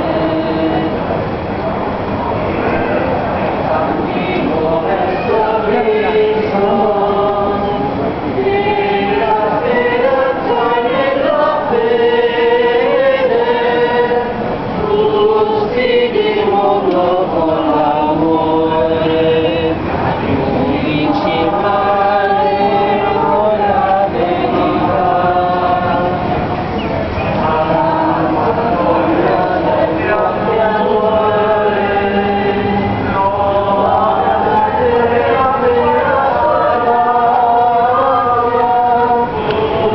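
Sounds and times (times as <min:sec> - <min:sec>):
crowd singing a hymn: 0:00.0 - 0:39.9.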